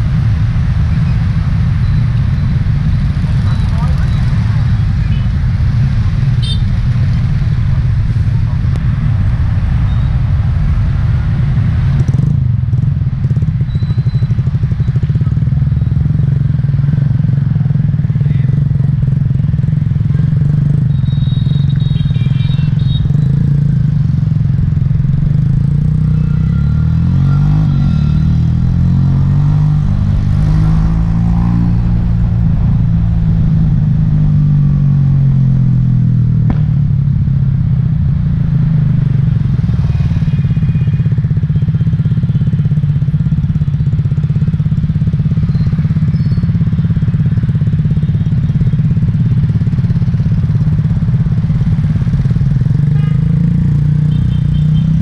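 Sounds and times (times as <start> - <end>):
scooter traffic: 0.0 - 55.0
motorbike engine running: 12.0 - 55.0.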